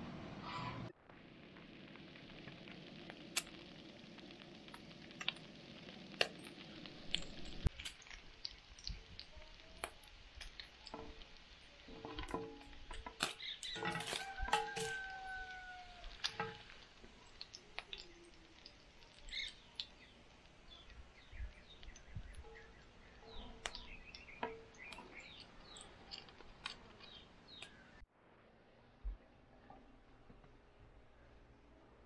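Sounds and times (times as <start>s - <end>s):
bacon sizzling in a skillet: 1.1s - 27.9s
birds chirping: 11.8s - 28.0s
metal tongs clinking on pan: 11.9s - 16.8s.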